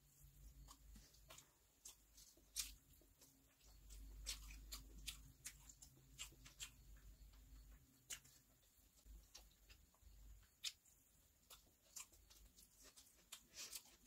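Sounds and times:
chewing mouth sounds: 0.5 - 8.5.

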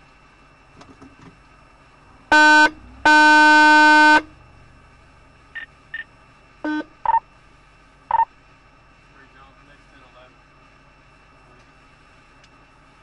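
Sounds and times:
vehicle horn blasts: 2.3 - 4.4, 6.6 - 7.0.

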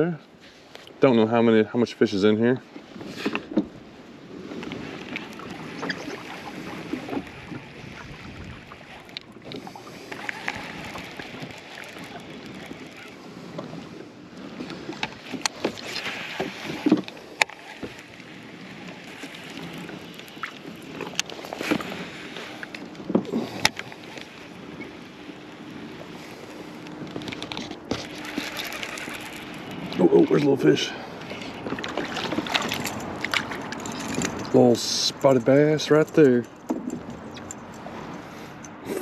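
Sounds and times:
water lapping against hull: 2.6 - 39.0.

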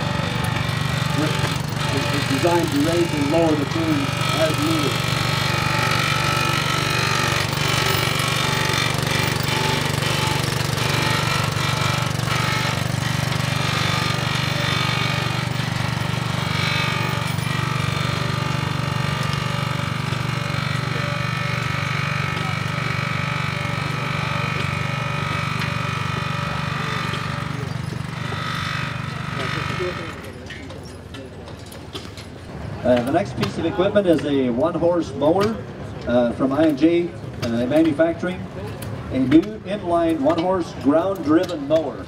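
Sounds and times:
sprayer pump motor chugging: 0.0 - 32.1.

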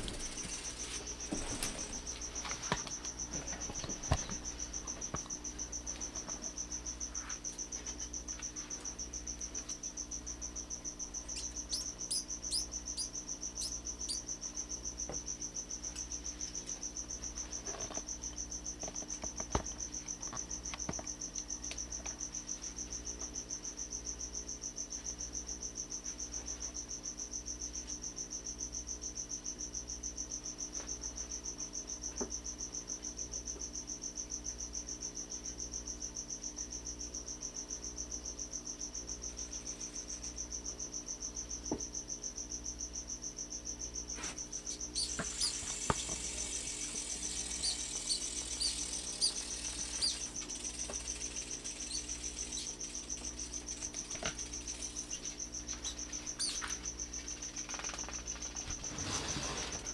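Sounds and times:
high-pitched insect trilling: 0.0 - 17.6, 42.3 - 59.0.

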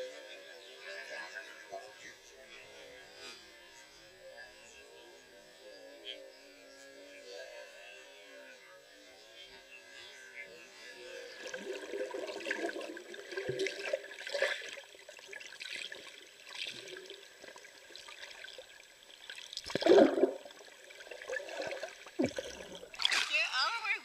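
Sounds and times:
water swishing and gurgling underwater: 11.0 - 23.4
water gush: 16.4 - 23.4.

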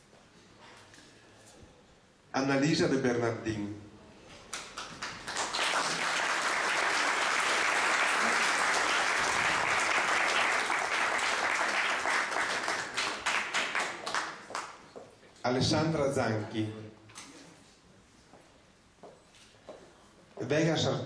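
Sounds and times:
audience applauding: 4.5 - 14.8.

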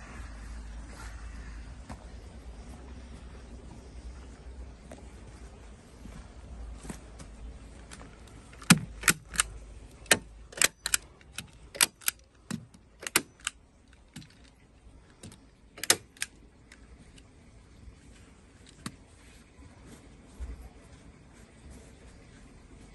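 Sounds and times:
staple gun snapping: 10.1 - 12.2, 13.0 - 13.5, 15.8 - 16.3.

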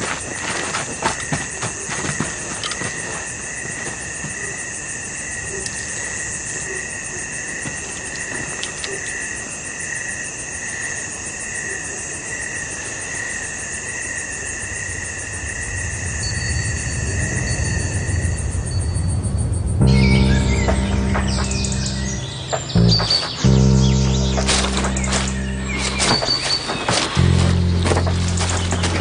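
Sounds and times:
crickets trilling: 0.0 - 29.0
low rumble: 15.4 - 29.0.

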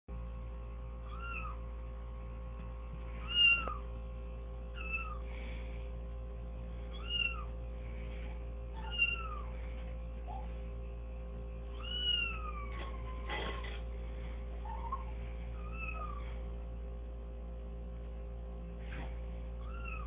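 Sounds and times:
steady electrical hum: 0.1 - 20.0
recorded cat meows: 3.2 - 3.8.

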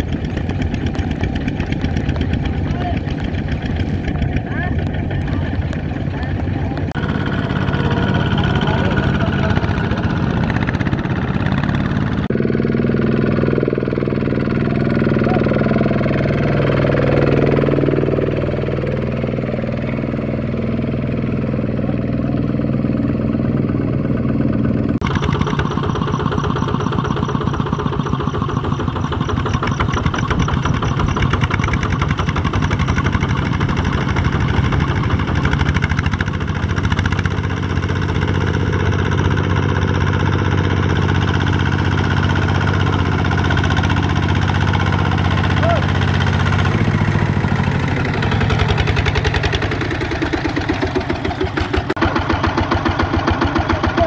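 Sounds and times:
diesel tractor engines chugging: 0.0 - 54.0.

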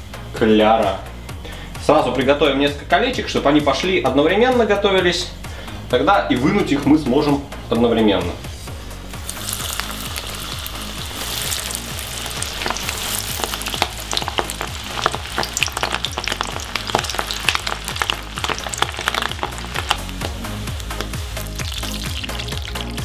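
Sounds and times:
food deep-frying in oil: 9.2 - 23.0
sharp crackling pops: 9.2 - 23.0.

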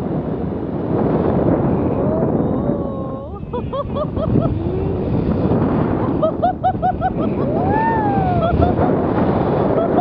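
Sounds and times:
wind buffeting microphone: 0.0 - 10.0
woman whooping: 2.1 - 3.4, 7.5 - 8.6
woman's excited cries: 6.3 - 8.8.

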